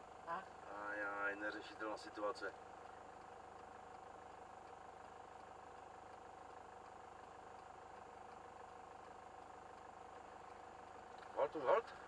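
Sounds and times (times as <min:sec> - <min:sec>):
car engine idling hum: 0:00.0 - 0:12.0
thin steady whine: 0:00.0 - 0:12.0.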